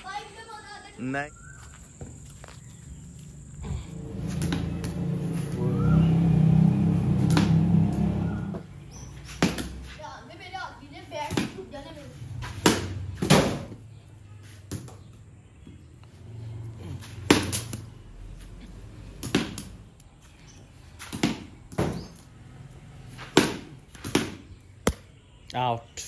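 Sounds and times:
rubber ball bouncing on concrete: 7.2 - 7.6, 8.5 - 10.0, 11.2 - 11.7, 12.4 - 13.9, 14.6 - 15.8, 17.2 - 18.0, 19.2 - 20.0, 21.0 - 22.3, 23.2 - 25.1
cricket bat hitting ball: 9.3 - 9.8, 12.6 - 13.8, 17.2 - 17.8, 19.2 - 19.7, 21.1 - 22.1, 23.2 - 25.1.

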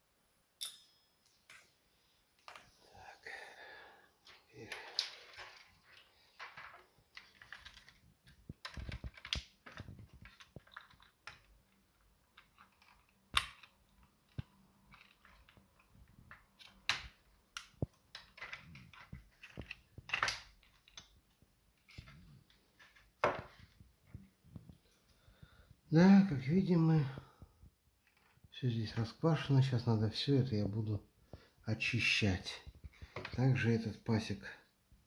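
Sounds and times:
clicks and taps of plastic parts: 6.4 - 21.2.

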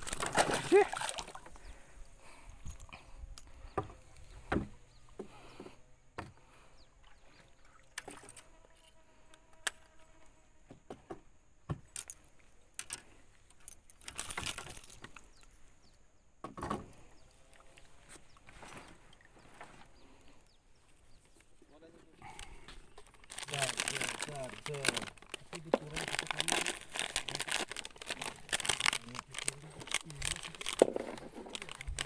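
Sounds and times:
fishing tackle clicking and jingling: 0.0 - 1.6, 2.4 - 3.7, 11.9 - 15.6, 22.4 - 32.0.

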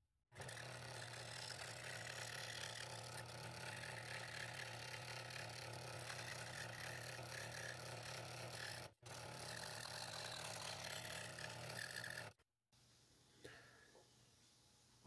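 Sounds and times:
scroll saw cutting wood: 0.3 - 12.4.

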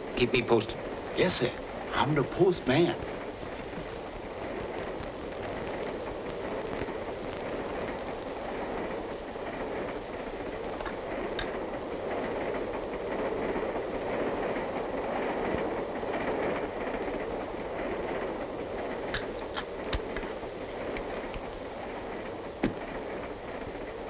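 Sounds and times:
train rumbling inside car: 0.0 - 24.0
faint clicks: 10.6 - 11.9, 18.8 - 21.5.

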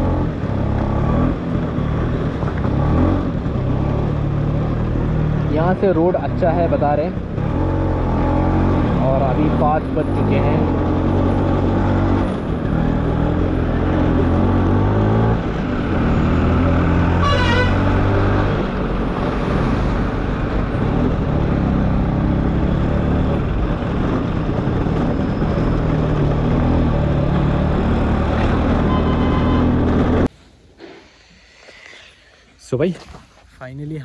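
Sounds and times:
vehicle horn toot: 17.1 - 18.0, 28.8 - 29.8.

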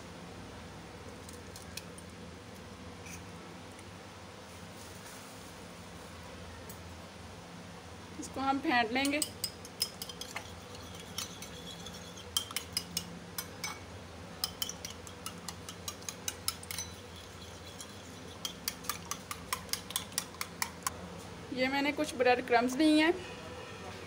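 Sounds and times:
whisk clinking in ceramic bowl: 9.0 - 13.8, 14.4 - 20.9.

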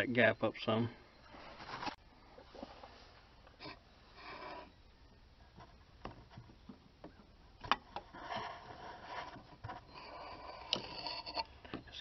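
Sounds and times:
metal scraping and rubbing: 7.9 - 11.6.

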